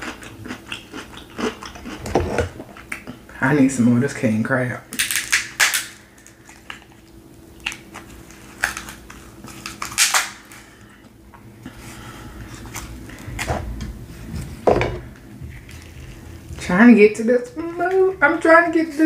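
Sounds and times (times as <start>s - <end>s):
crab shells cracking: 4.9s - 10.9s.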